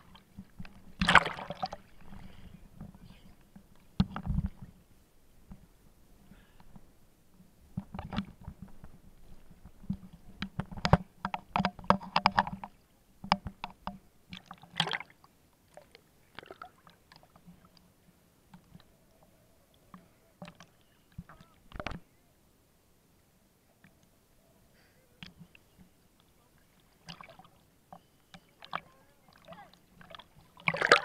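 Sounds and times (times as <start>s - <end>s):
sea water splashing and sloshing: 0.0s - 4.8s, 11.6s - 17.8s, 26.3s - 31.0s.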